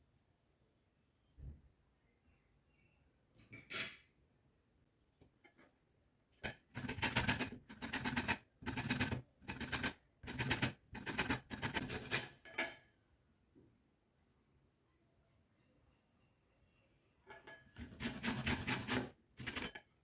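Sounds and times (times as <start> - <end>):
grater scraping: 6.7 - 12.4, 17.8 - 19.8.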